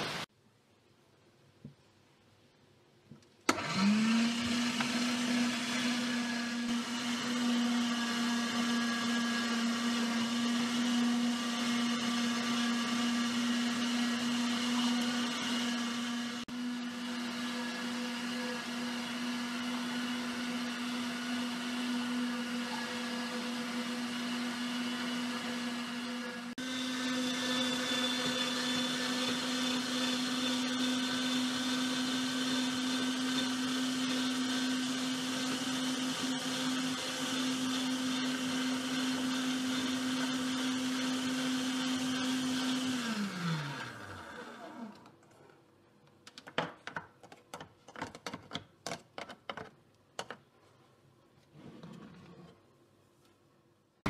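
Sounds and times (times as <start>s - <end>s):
electric meat grinder running: 3.5s - 45.0s.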